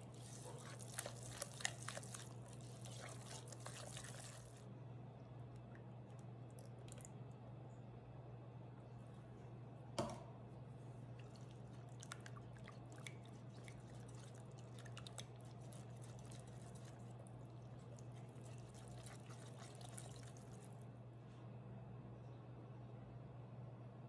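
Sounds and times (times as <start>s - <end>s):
whisk beating batter in bowl: 0.0s - 4.6s, 11.2s - 20.8s.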